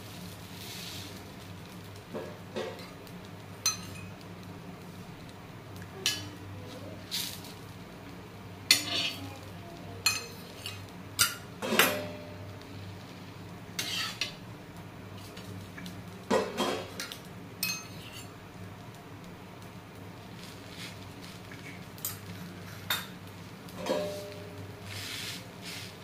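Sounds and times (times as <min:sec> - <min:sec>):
metal spoon scraping a griddle: 0:06.0 - 0:07.6, 0:08.7 - 0:12.5, 0:13.8 - 0:14.4, 0:16.3 - 0:18.4, 0:20.4 - 0:23.1, 0:23.7 - 0:26.0.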